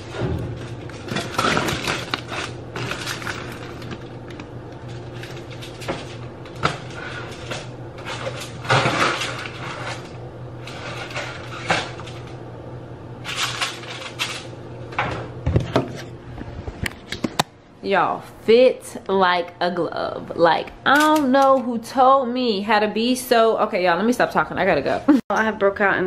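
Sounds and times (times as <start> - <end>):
plastic bags crinkling: 0.0 - 12.4
steady low hum: 0.0 - 26.0.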